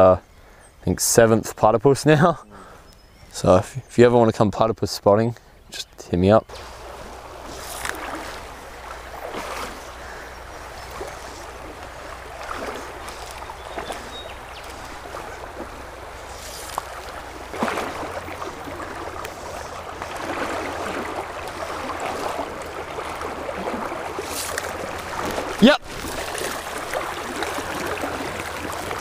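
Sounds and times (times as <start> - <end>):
river water rippling over stones: 6.5 - 29.0.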